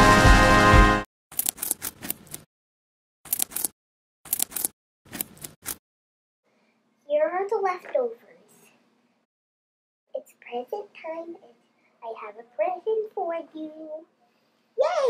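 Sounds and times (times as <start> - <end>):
background music: 0.0 - 1.0
clicking rustling and scraping: 1.4 - 2.5, 4.3 - 5.8.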